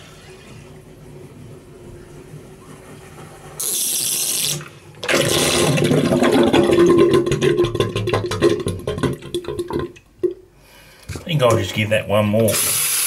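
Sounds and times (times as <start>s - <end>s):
water gurgling down a drain: 5.0s - 10.4s.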